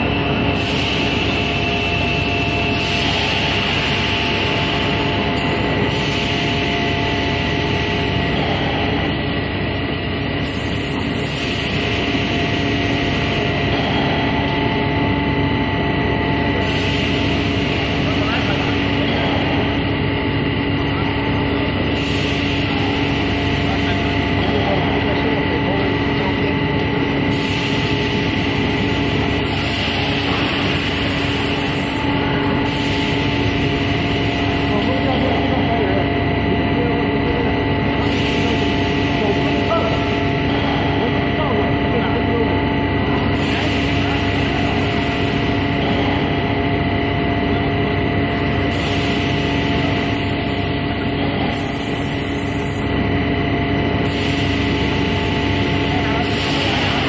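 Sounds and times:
machinery drone with humming tones: 0.0 - 57.0.

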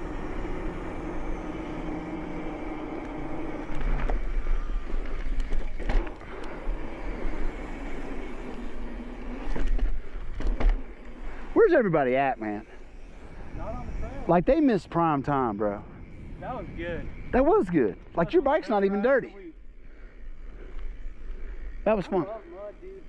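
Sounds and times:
bike tyres rolling on asphalt: 0.0 - 23.0
wind buffeting microphone: 13.0 - 18.6.

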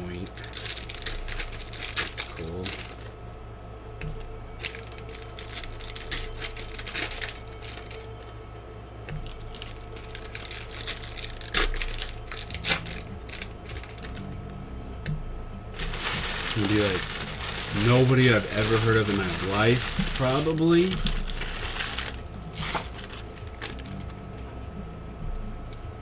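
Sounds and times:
foil wrapper crinkling and tearing: 0.0 - 3.1, 4.6 - 8.2, 9.2 - 14.2, 15.8 - 24.2.

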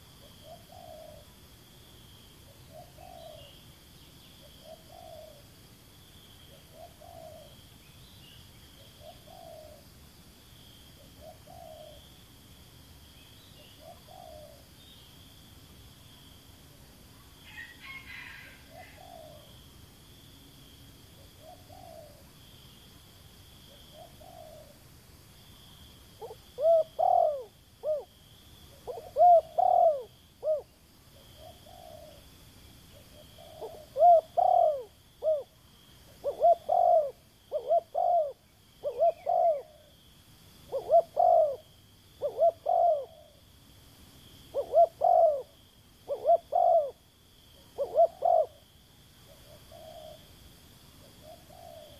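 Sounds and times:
dove cooing: 0.0 - 1.4, 2.5 - 3.6, 4.4 - 5.5, 6.5 - 7.6, 8.8 - 9.8, 11.0 - 12.1, 13.6 - 14.7, 17.5 - 19.6, 21.2 - 22.3, 23.7 - 24.8, 26.2 - 28.1, 28.7 - 32.3, 32.9 - 40.0, 40.7 - 43.4, 44.5 - 47.0, 47.6 - 48.7, 49.3 - 50.3, 51.0 - 51.9.

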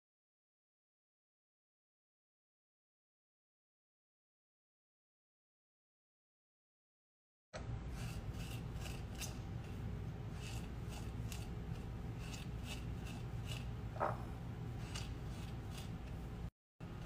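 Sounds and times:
steady low hum: 7.6 - 17.0
spatula scraping sugar in bowl: 7.8 - 17.0.

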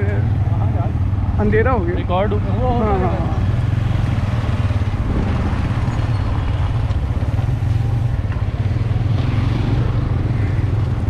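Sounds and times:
road noise: 0.0 - 11.0
vehicle engine drone: 0.0 - 11.0.

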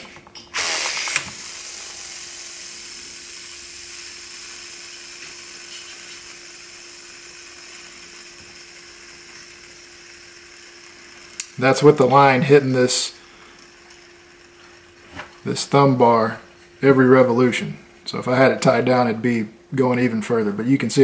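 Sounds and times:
line slapping reel: 0.0 - 16.0
fishing reel spool whirring: 0.5 - 15.9.

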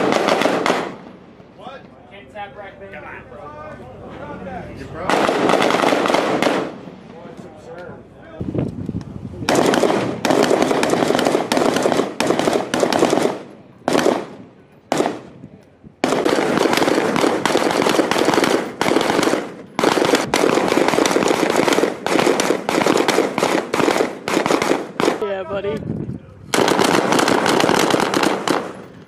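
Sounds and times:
rapid rifle gunfire: 0.0 - 1.0, 5.1 - 6.8, 9.5 - 15.3, 16.0 - 25.4, 26.5 - 28.9.

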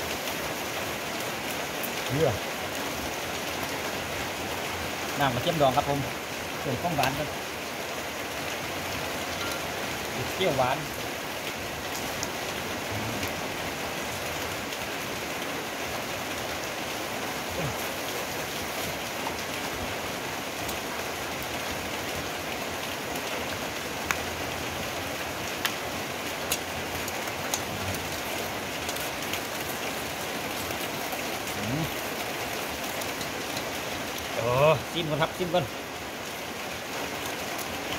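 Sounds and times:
steady rain hiss: 0.0 - 37.9.

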